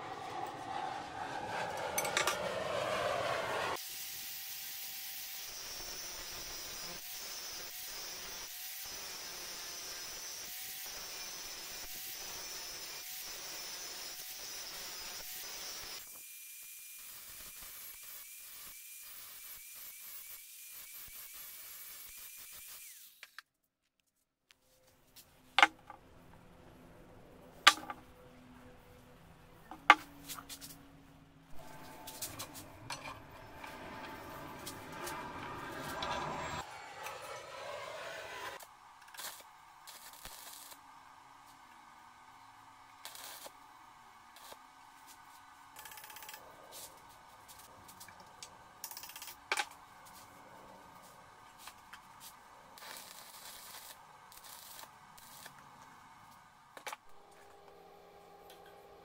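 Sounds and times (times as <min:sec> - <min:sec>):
angle grinder spinning down: 0:00.0 - 0:16.0, 0:31.6 - 0:38.6
welding arc crackle: 0:39.0 - 0:40.8, 0:43.0 - 0:43.6, 0:52.8 - 0:55.6.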